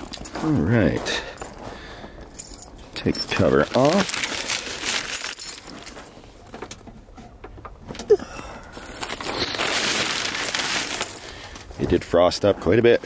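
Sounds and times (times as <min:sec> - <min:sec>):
fabric cover rustling and crackling: 0:02.4 - 0:06.5, 0:08.8 - 0:13.0.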